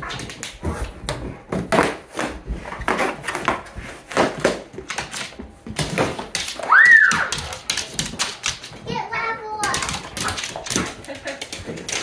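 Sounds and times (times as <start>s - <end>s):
dog claws clicking on floor: 2.7s - 12.0s.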